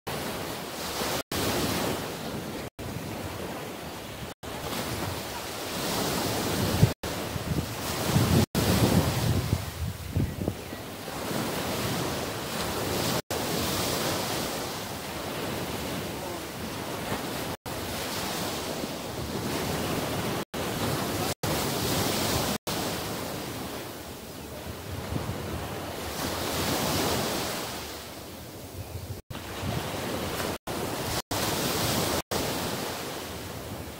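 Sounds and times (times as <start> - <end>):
surf washing onto beach: 0.1 - 10.0, 11.0 - 28.1, 29.2 - 33.9
wind on microphone: 0.2 - 23.8, 24.5 - 33.9
wind buffeting microphone: 4.2 - 13.2.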